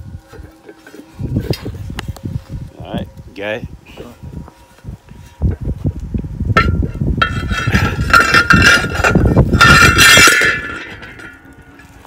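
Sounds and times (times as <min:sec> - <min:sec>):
metal grinding against metal: 0:00.0 - 0:03.2, 0:06.5 - 0:12.0
steel disc blade clanking and ringing: 0:00.3 - 0:01.8, 0:06.6 - 0:12.0.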